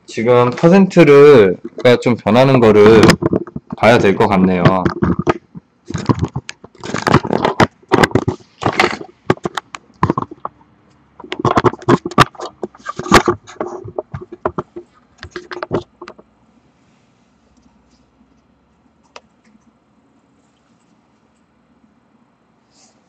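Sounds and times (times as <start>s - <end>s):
camera handling rustling: 2.8s - 3.8s, 4.8s - 10.5s, 11.2s - 16.2s.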